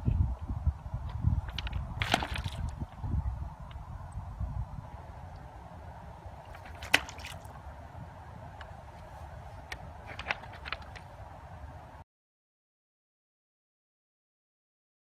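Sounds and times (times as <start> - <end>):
low rumble and hiss of outdoors: 0.0 - 12.0.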